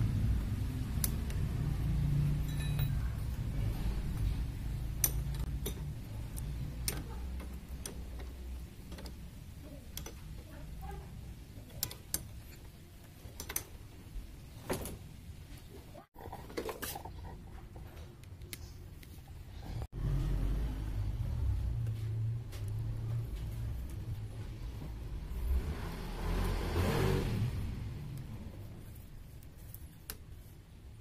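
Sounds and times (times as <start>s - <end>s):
hand tools clinking: 2.4s - 3.4s
spanner clicking on metal: 4.9s - 9.3s, 9.9s - 10.4s, 11.7s - 13.8s.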